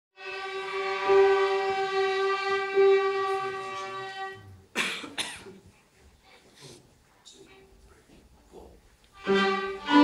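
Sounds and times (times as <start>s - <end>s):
violins bowing a long note: 0.2s - 4.5s, 9.2s - 10.0s.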